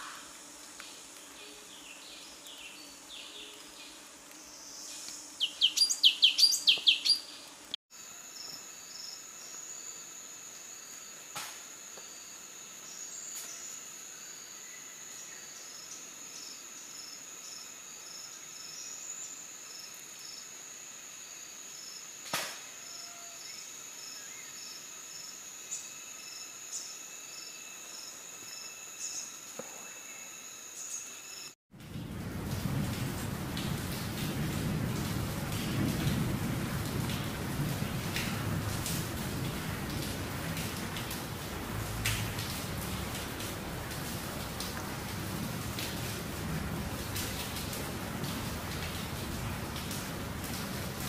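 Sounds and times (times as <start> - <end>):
songbird singing: 1.0 - 7.6.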